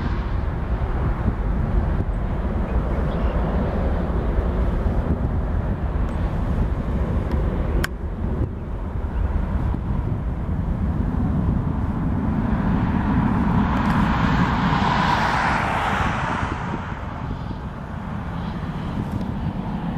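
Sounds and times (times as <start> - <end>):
jet engines rumbling: 0.0 - 19.9.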